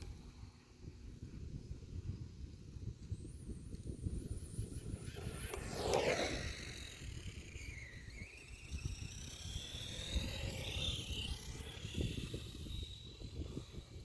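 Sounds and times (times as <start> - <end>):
electric motor whining: 3.6 - 14.0.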